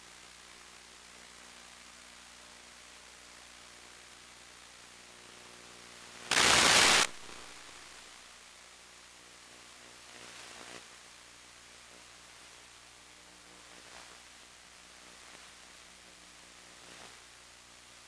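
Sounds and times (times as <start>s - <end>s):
static hiss: 0.0s - 18.0s
loud burst of static: 6.1s - 8.4s.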